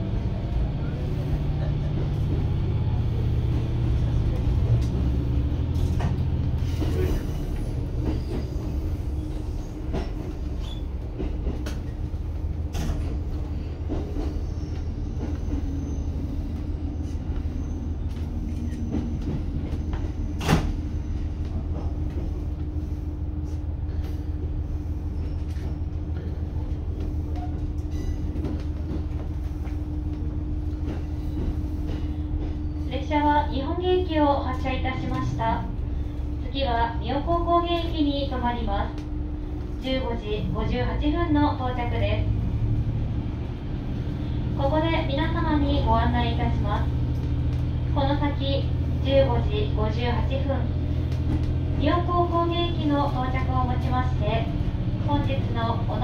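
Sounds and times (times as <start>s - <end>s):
railcar engine drone: 0.0s - 56.0s
train wheel clicks: 9.9s - 12.1s.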